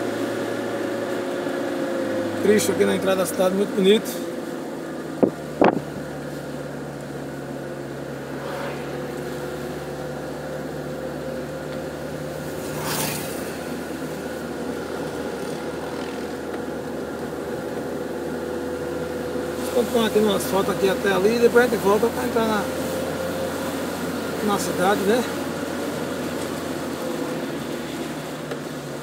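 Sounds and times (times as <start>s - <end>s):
car engine and road noise: 0.0s - 29.0s
short rush of noise: 8.2s - 9.9s.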